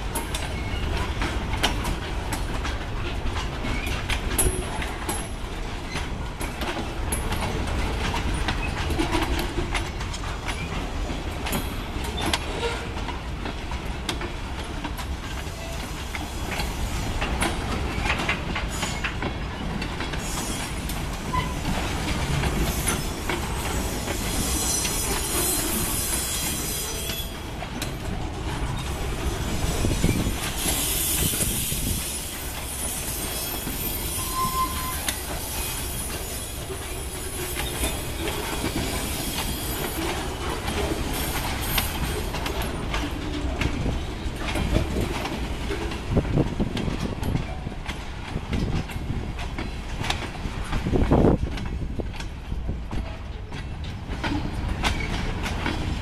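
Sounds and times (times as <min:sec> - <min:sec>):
wheels clicking over rail joints: 0:00.0 - 0:56.0
high-pitched wheel squeal: 0:23.8 - 0:27.4, 0:30.0 - 0:38.2.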